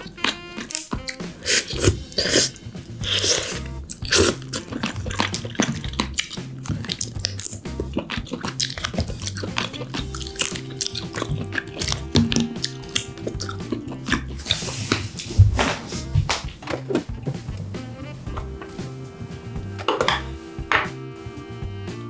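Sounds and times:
crab shell cracking: 0.0s - 1.3s, 3.2s - 14.4s
chewing: 0.0s - 16.1s
background music with bass line: 0.0s - 22.0s.

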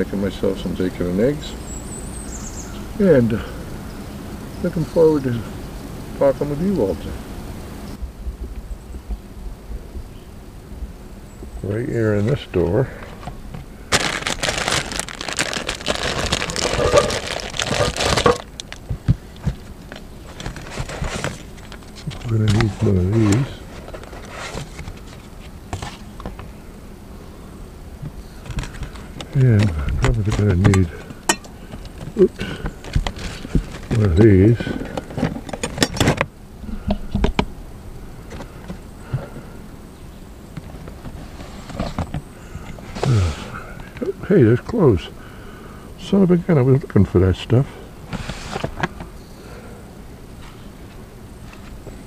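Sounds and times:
faint rustling: 11.6s - 39.8s, 47.9s - 52.0s
plastic packaging crinkling: 13.9s - 22.8s.

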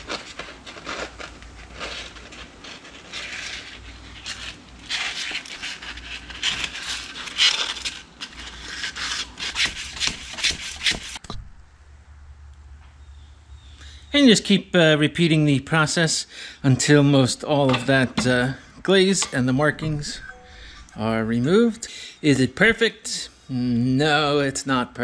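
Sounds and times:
sandpaper rasping on metal: 3.0s - 11.2s.

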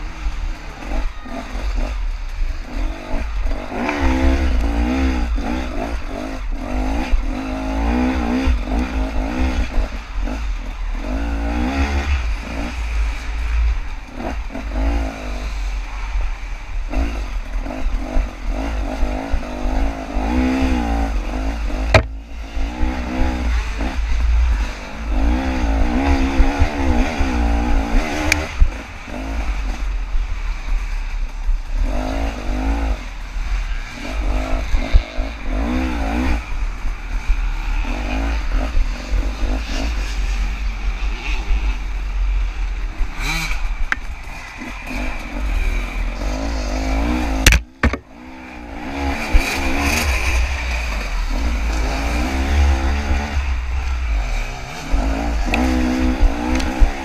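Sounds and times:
dirt bike engine revving: 0.0s - 57.0s
sharp knocks and clatters: 21.9s - 22.2s, 47.4s - 48.1s.

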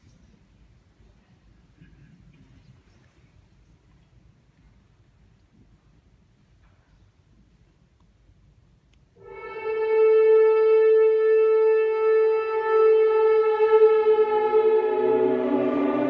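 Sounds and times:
low orchestral tones: 9.2s - 16.0s
shofar blast: 9.2s - 16.0s.

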